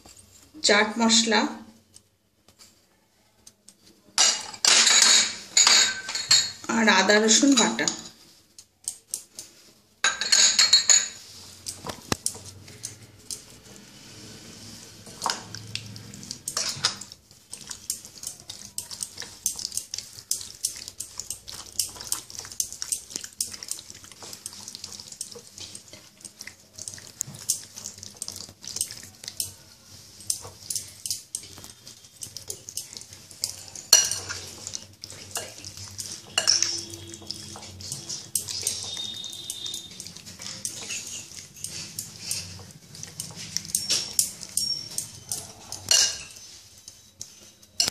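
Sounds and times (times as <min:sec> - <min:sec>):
wet squelching of meat mixed by hand: 0:11.2 - 0:47.9.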